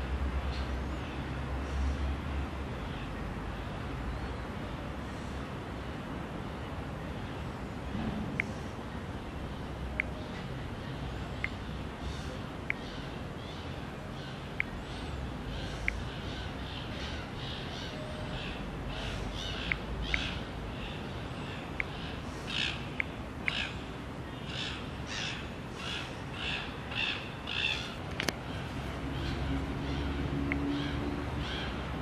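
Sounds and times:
harsh crow-like calls: 24.5 - 28.0.

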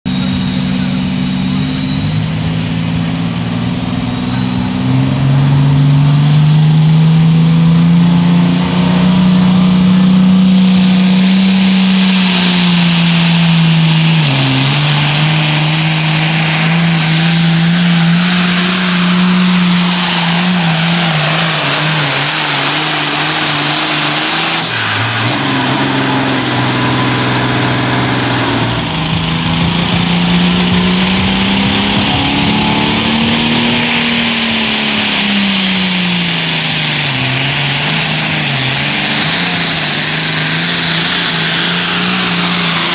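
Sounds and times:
tractor engine at high revs: 0.0 - 42.9
turbo whine: 0.1 - 42.9.

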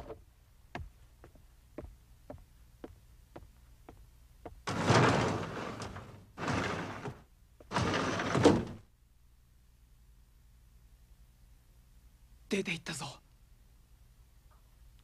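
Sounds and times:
sliding door rolling on track: 4.7 - 8.8
door slamming shut: 7.7 - 8.8.

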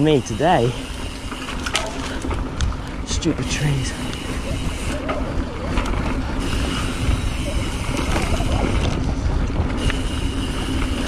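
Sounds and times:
bike tyres rolling on dirt: 0.0 - 11.0
wind on camera microphone: 4.0 - 11.0.

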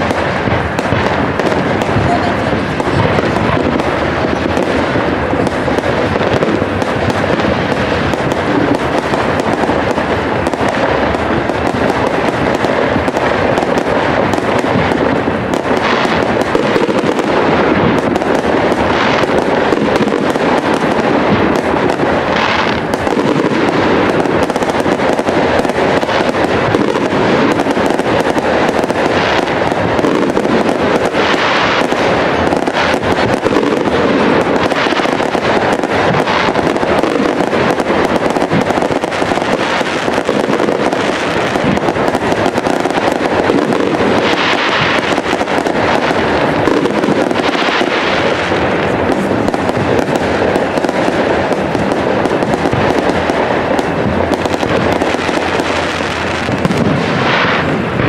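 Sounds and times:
fireworks bangs and crackles: 0.0 - 58.0.

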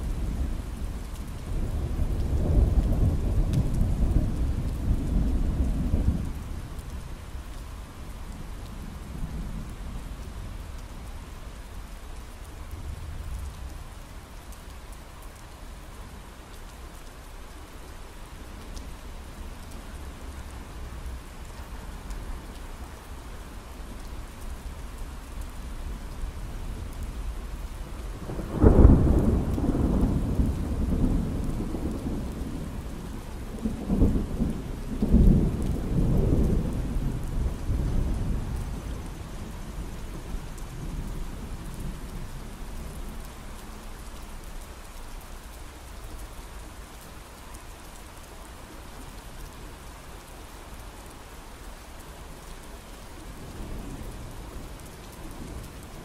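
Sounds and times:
steady rain: 0.0 - 56.0
thunder rumbling: 28.1 - 43.1
loud thunderclap: 28.4 - 32.5.

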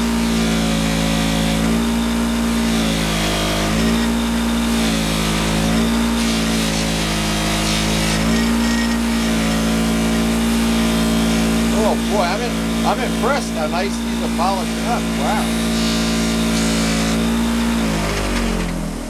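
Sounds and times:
bench grinder motor hum: 0.0 - 19.0.

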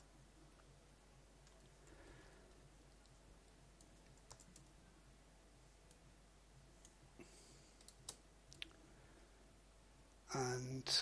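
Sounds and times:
faint mouse and keyboard clicks: 3.8 - 4.7, 7.7 - 8.8.

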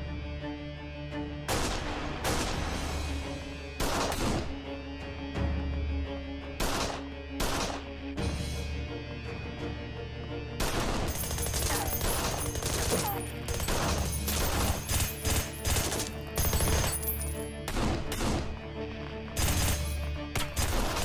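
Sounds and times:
tense music with low bass: 0.0 - 21.0
gunfire volleys: 3.8 - 4.6, 6.6 - 7.9, 10.6 - 16.9, 19.4 - 21.0.

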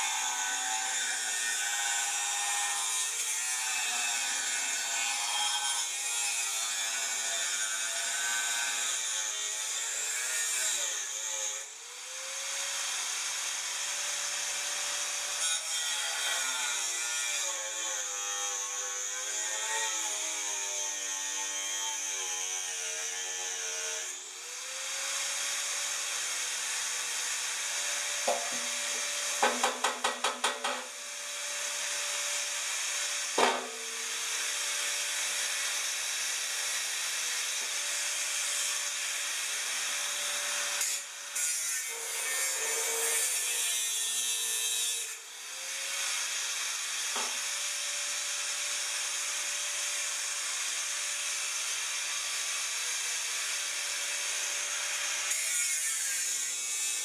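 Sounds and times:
angle grinder cutting metal: 0.0 - 57.0
metal knocks: 28.3 - 28.8, 29.4 - 30.9.

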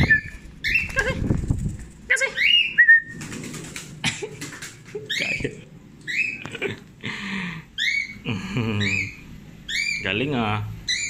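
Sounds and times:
wings flapping: 0.0 - 2.2, 2.9 - 5.1.

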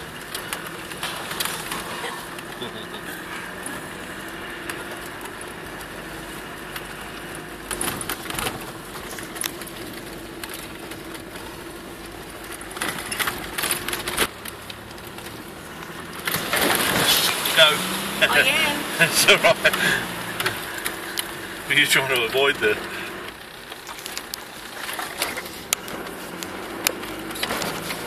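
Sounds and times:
vehicle knocks and rattles: 0.0 - 2.6, 4.5 - 18.2, 22.7 - 28.0
diesel engine running: 0.0 - 28.0.

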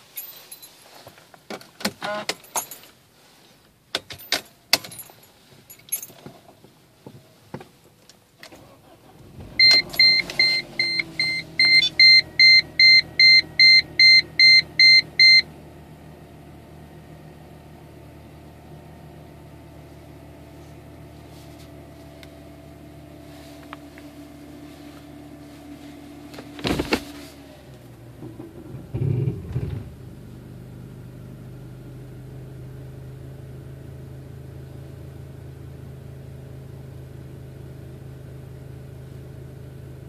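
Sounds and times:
keys jangling in ignition: 0.0 - 1.1, 2.0 - 3.0, 4.0 - 6.6
car engine starting and idling: 0.0 - 40.0
seatbelt warning chime beeping: 9.4 - 15.5.

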